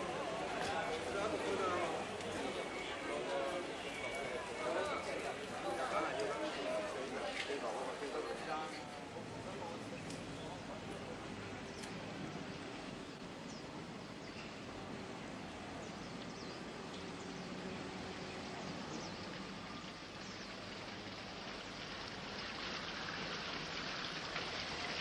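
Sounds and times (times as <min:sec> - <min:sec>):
water splashing in a fountain: 0:16.8 - 0:25.0.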